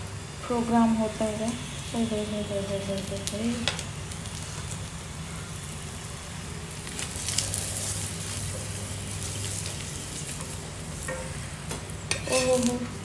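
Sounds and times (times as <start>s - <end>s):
flatbread sizzling on a griddle: 0.0s - 13.0s
steady low hum: 0.0s - 13.0s.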